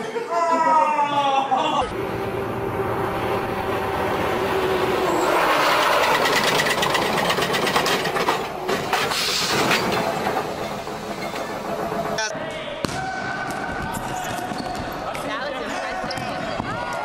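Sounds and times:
truck engine whine: 1.9 - 12.3
tyres skidding on pavement: 2.0 - 12.2.

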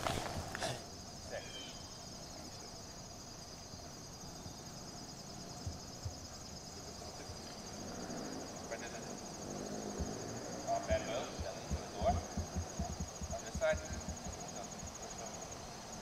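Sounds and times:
insects chirring: 0.0 - 16.0
outdoor background noise: 0.0 - 16.0
soft low thumps: 5.6 - 6.5, 9.8 - 15.1.

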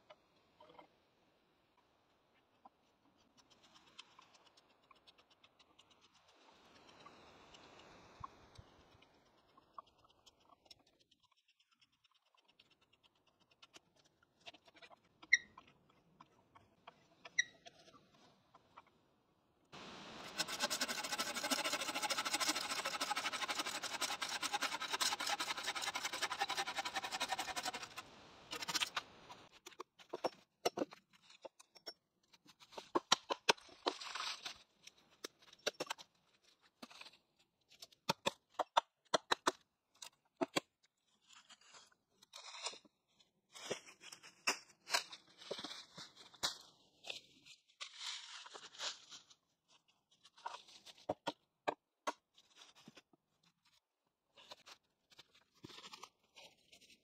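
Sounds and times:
saw cutting through branch: 20.0 - 29.2
drawknife scraping wood: 20.2 - 30.9.

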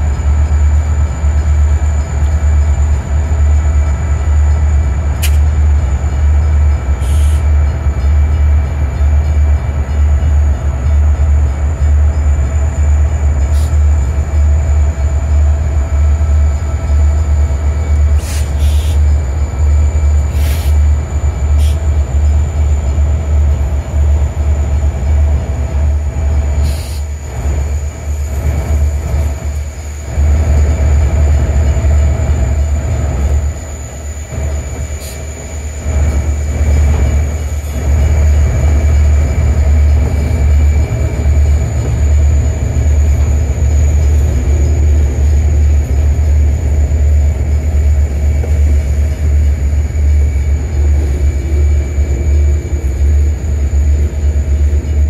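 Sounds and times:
diesel locomotives rumbling: 0.0 - 55.0.

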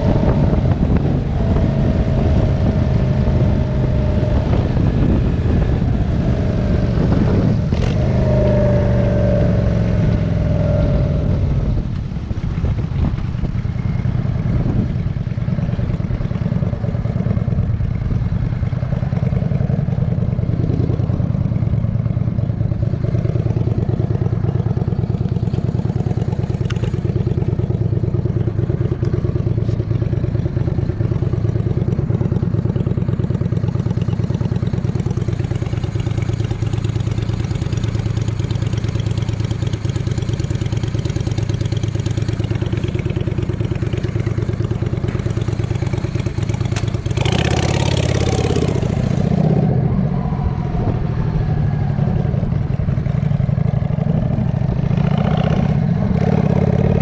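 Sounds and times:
vehicle engine running: 0.0 - 57.0
high tone gliding downward: 47.2 - 54.6.

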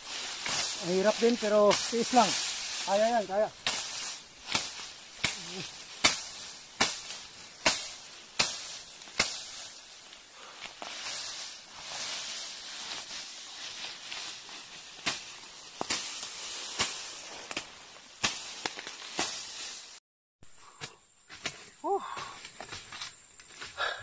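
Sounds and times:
rustling grass stems: 0.0 - 20.0
machete chopping brush: 0.1 - 20.0.

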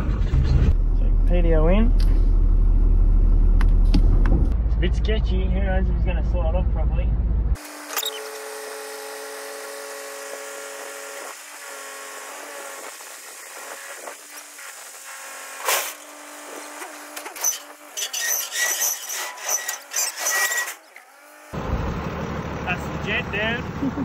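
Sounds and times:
hoist whine: 7.6 - 21.9
metal clanks and scraping: 15.6 - 21.0.

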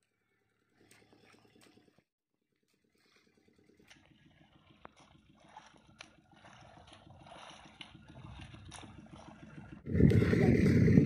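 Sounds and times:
low rapid even pulsing: 3.6 - 11.0.

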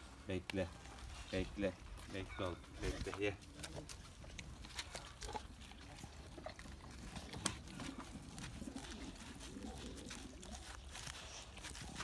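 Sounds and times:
dog licking and chewing: 2.9 - 12.0.

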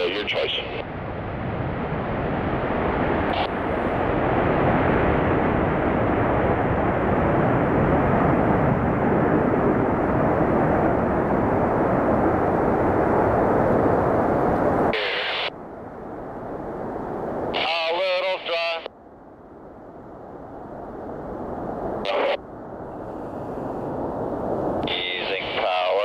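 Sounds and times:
jet engines roaring: 0.0 - 18.9.

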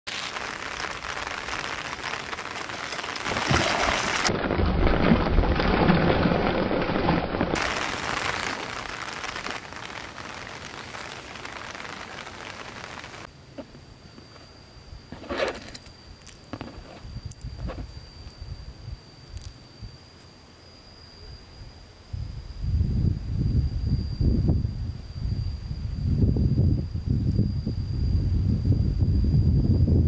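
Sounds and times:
fish splashing in water: 3.2 - 8.3.

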